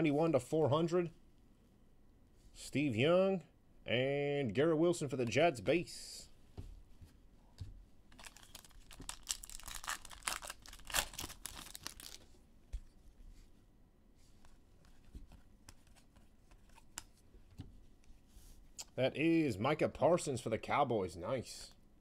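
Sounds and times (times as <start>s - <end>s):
cards rustling and clicking: 8.2s - 12.3s, 14.4s - 17.2s
wrapper tearing and crinkling: 8.2s - 12.3s.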